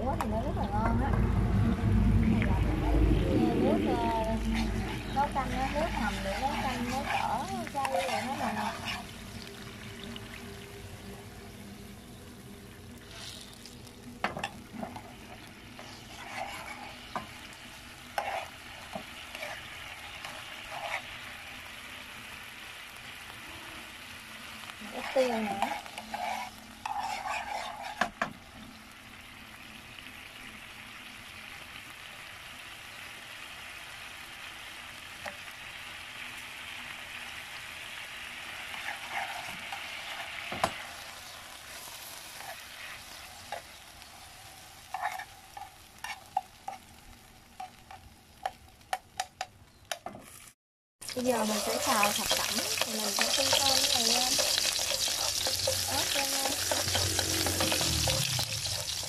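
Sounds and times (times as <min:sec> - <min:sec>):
gravy bubbling in a frying pan: 0:02.4 - 0:49.5, 0:50.3 - 0:59.0
metal spoon scraping a pan: 0:04.4 - 0:09.4, 0:14.3 - 0:21.4, 0:24.8 - 0:28.3, 0:38.6 - 0:46.9, 0:47.6 - 0:48.6, 0:51.3 - 0:59.0.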